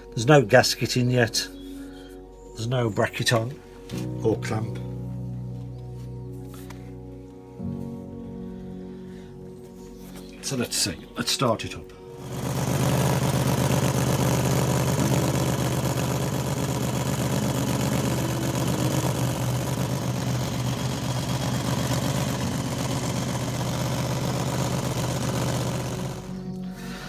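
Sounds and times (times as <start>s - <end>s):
motorcycle engine idling: 12.2s - 26.7s.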